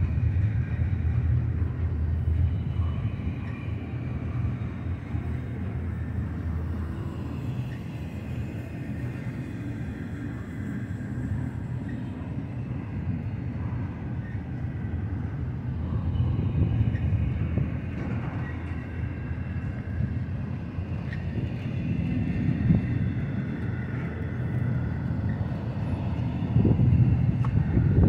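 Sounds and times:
freight train rolling on rails: 0.0 - 28.0.

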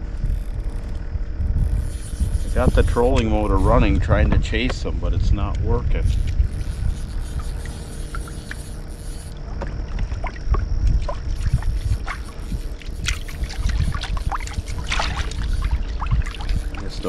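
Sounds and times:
electric motor humming: 0.0 - 17.0
water splashing against hull: 6.1 - 17.0.

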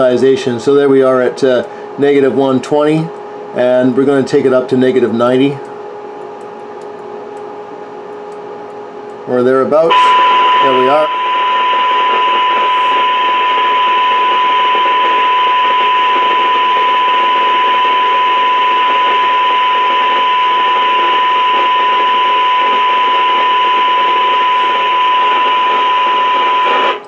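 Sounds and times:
steady test tone: 0.0 - 27.0
static hiss: 10.1 - 27.0.

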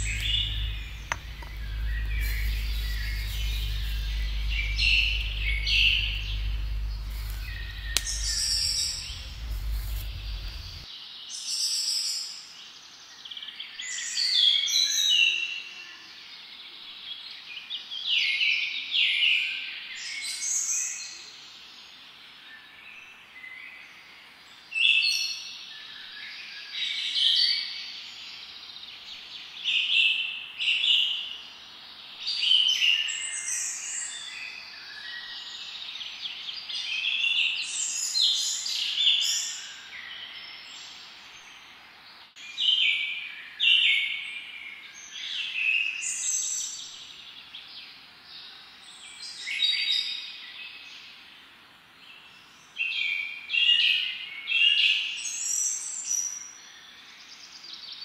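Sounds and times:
birds singing and chirping: 0.0 - 10.9.

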